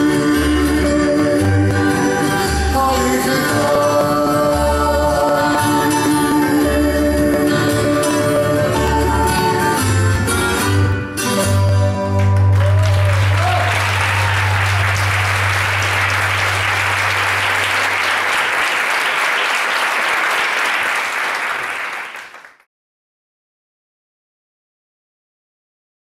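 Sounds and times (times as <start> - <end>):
dance music: 0.0 - 18.4
audience applauding: 12.2 - 22.7.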